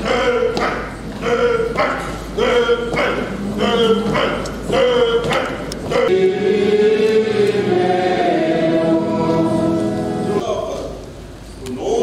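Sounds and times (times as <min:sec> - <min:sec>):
choir singing slow chant: 0:05.9 - 0:10.4.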